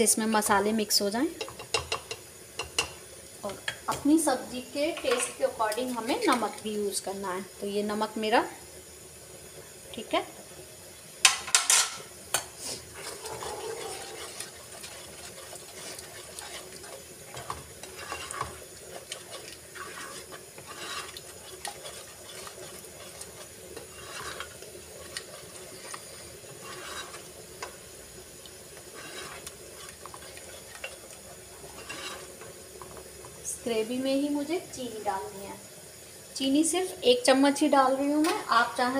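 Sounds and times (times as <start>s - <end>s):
gravy sizzling: 0.0s - 38.9s
spatula scraping a pan: 11.3s - 27.8s, 28.8s - 33.0s.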